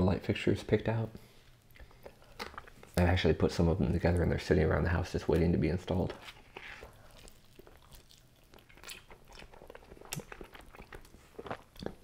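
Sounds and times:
close chewing and biting: 6.1s - 12.0s.

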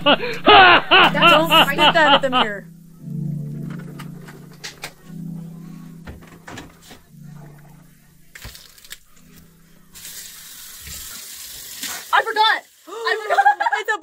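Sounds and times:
water running into sink: 10.0s - 13.7s.

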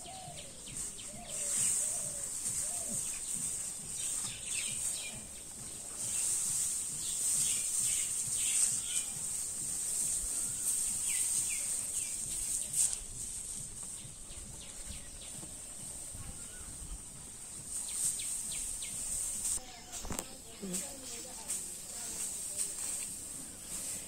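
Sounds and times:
birds chirping: 0.0s - 24.0s
steady high-pitched hiss: 0.0s - 24.0s.

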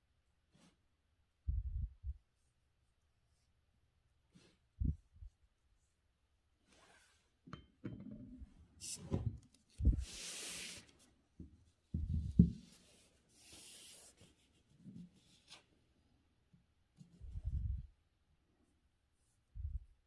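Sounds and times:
paper swishing across a desk: 9.8s - 11.1s.

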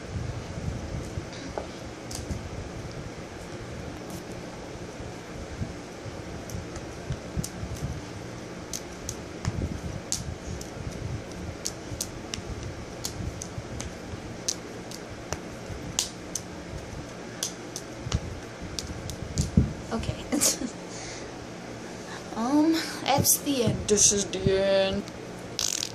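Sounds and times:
ceiling fan whirring: 0.0s - 25.9s
juggling balls clicking and tapping: 8.7s - 19.6s.

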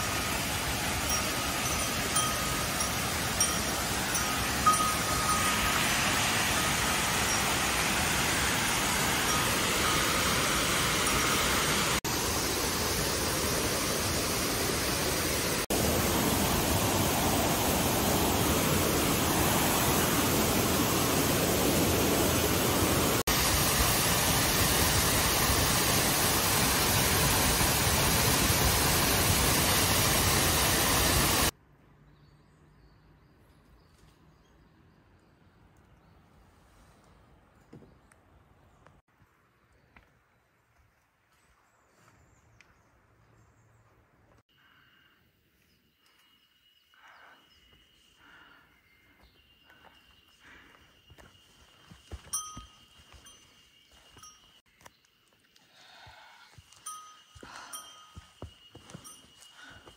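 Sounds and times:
waterfall and stream rushing: 0.0s - 31.5s.

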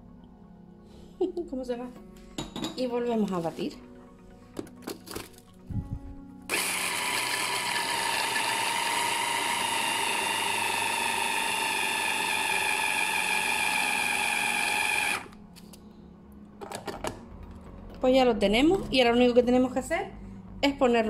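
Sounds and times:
electric chopper motor running: 6.5s - 15.4s.

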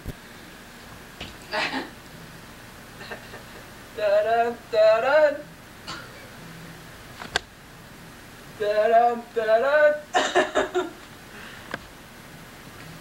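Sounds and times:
person singing wordless notes: 4.0s - 5.5s, 8.6s - 10.2s.

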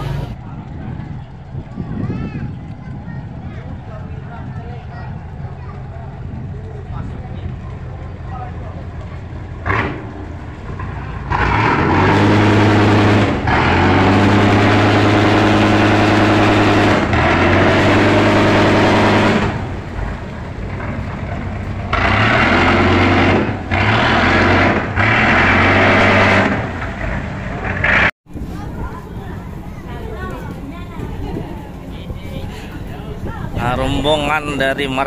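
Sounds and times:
boat horn low drone: 0.0s - 1.7s, 2.5s - 28.1s.

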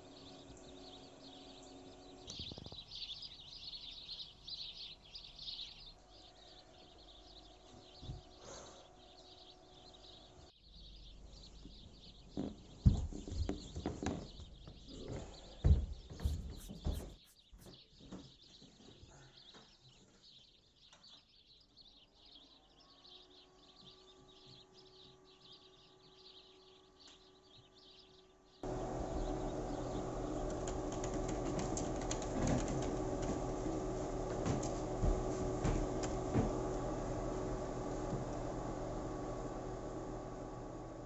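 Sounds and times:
fan motor hum rising: 0.0s - 12.3s, 22.8s - 41.0s.

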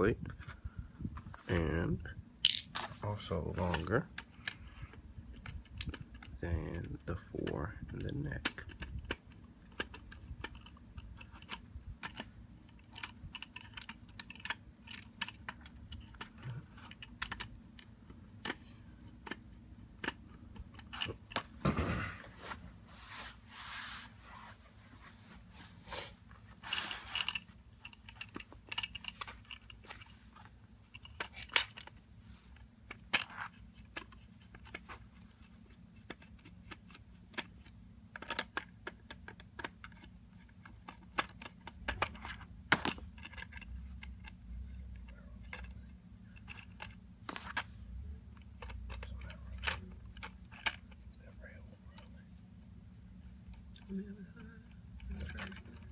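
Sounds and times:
scraping rustles: 20.9s - 31.4s.

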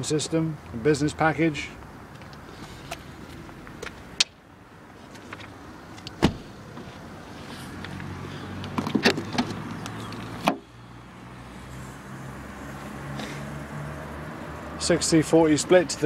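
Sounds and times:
car door shutting: 6.1s - 6.9s.

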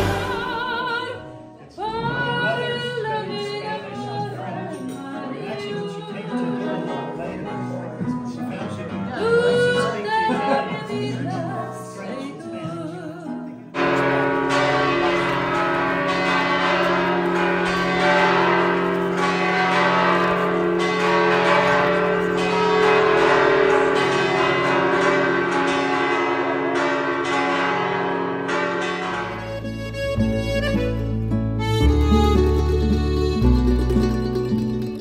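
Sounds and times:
church bells pealing: 0.0s - 0.7s, 13.8s - 34.6s
song with voice and guitar: 0.0s - 6.6s, 8.1s - 13.7s.

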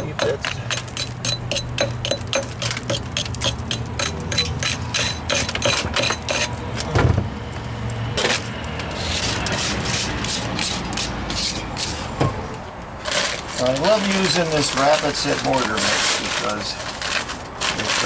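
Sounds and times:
wire brush scrubbing concrete: 8.9s - 12.0s.

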